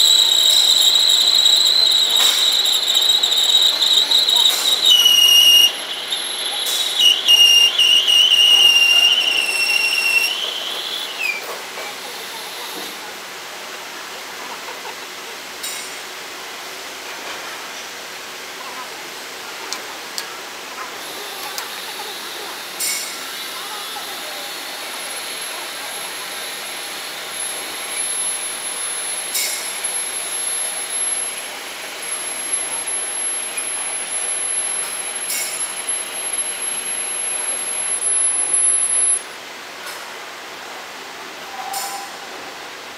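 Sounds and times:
lathe cutting tool squealing: 0.0 - 11.3
high-pitched whine: 25.0 - 39.3.

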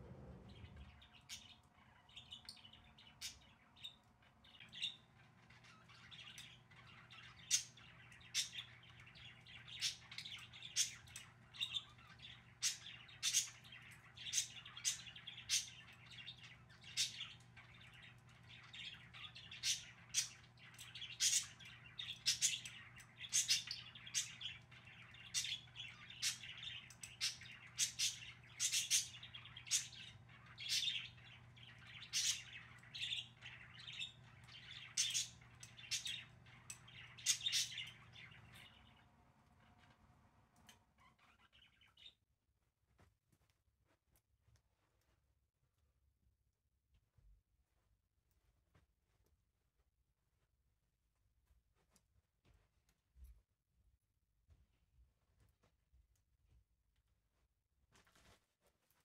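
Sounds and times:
budgerigars chattering: 12.6 - 13.6, 21.1 - 24.5, 25.3 - 31.2, 32.1 - 33.2, 37.1 - 37.9.

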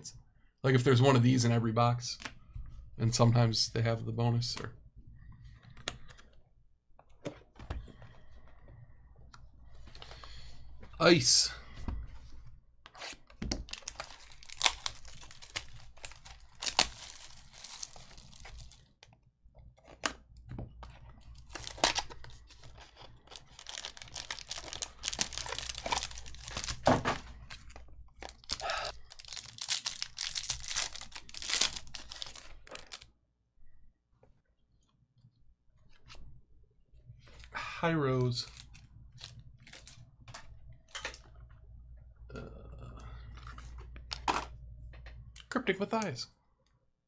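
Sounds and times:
card wrappers tearing and crinkling: 12.9 - 19.0, 21.2 - 33.0.

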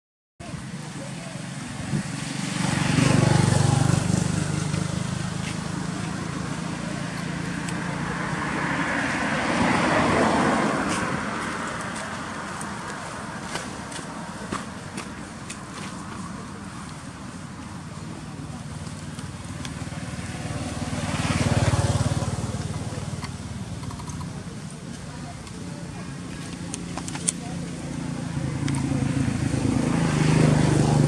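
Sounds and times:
vehicles passing: 0.4 - 31.0.

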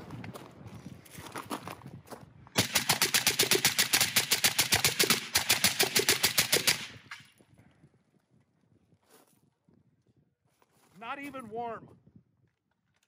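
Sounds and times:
suppressed rifle rapid fire: 2.6 - 7.2.

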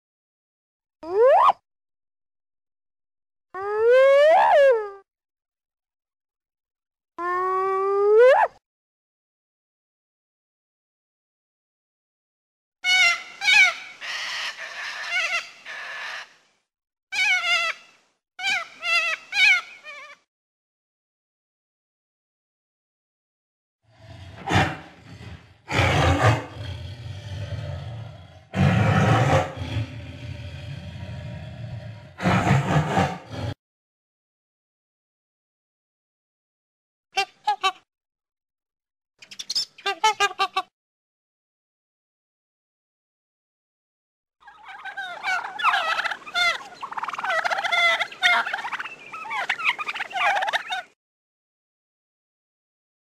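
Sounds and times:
tiger growling: 23.9 - 33.6
tiger roaring: 23.9 - 33.6
turkey gobbling: 44.4 - 51.0.

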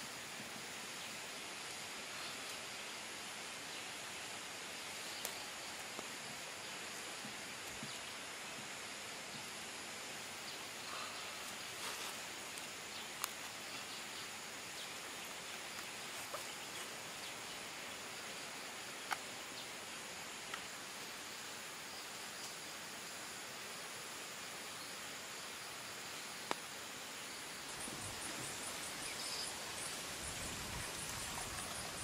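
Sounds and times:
outdoor ambient hiss: 0.0 - 32.0
soft rustles: 11.4 - 12.7.

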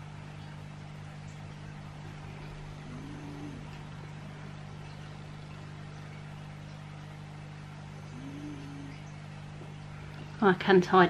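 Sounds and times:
low electrical hum: 0.0 - 11.0
faint rising and falling tone: 1.7 - 6.4.

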